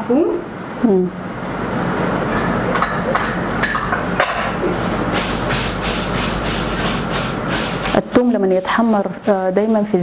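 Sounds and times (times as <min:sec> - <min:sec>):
utensil clinking against pot: 0:02.3 - 0:04.6.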